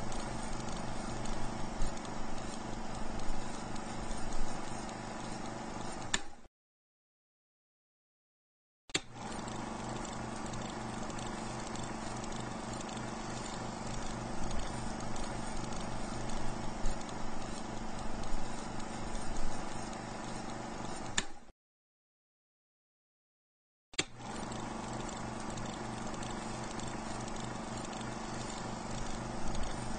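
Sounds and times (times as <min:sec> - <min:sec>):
film projector whirring and clattering: 0:00.0 - 0:06.5, 0:09.0 - 0:21.5, 0:24.0 - 0:29.9
projector switch click: 0:06.1 - 0:06.4, 0:21.1 - 0:21.4.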